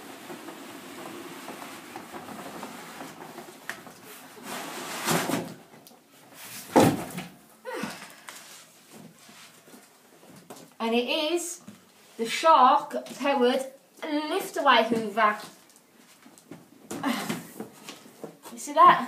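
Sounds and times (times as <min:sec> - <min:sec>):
cardboard scraping and rustling: 0:00.0 - 0:05.7.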